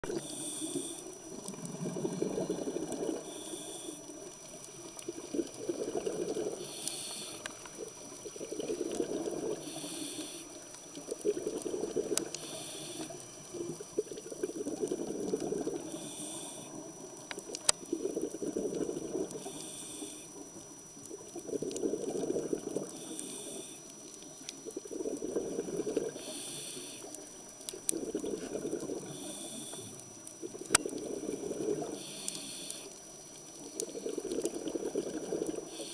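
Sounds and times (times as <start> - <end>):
faint high whine: 0.0 - 1.8, 2.4 - 5.0, 6.6 - 7.7, 9.5 - 10.7, 12.2 - 13.8, 15.7 - 17.8, 19.1 - 21.5, 22.8 - 24.8, 26.2 - 27.8, 28.4 - 34.1
regulator hissing inhalations: 0.1 - 1.1, 3.2 - 4.0, 6.6 - 7.6, 9.6 - 10.6, 12.3 - 13.2, 15.9 - 16.8, 19.4 - 20.3, 22.9 - 23.8, 26.2 - 27.2, 29.1 - 30.0, 31.9 - 33.0, 35.6 - 35.9
bubbling exhalations underwater: 1.3 - 3.3, 5.1 - 6.7, 7.7 - 9.8, 11.0 - 12.4, 13.5 - 15.9, 17.8 - 19.4, 21.2 - 23.0, 24.6 - 26.2, 27.8 - 29.2, 30.4 - 32.0, 33.8 - 35.8.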